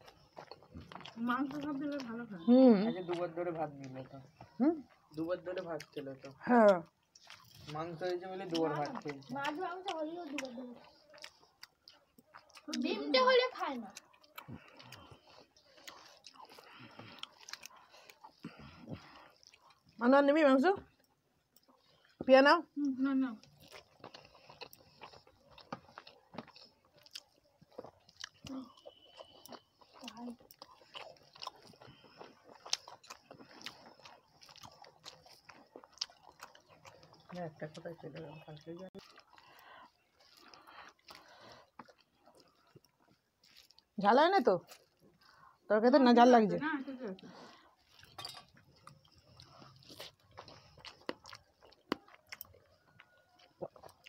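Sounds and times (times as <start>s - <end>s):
person chewing food: 0.0s - 44.0s, 44.6s - 45.7s, 47.1s - 54.0s.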